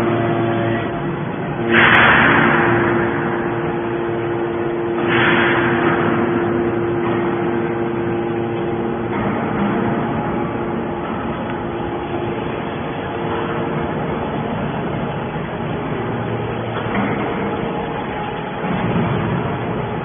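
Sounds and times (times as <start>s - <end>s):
scrap baler humming: 0.0s - 20.0s
hydraulic hissing rushes: 1.6s - 15.2s.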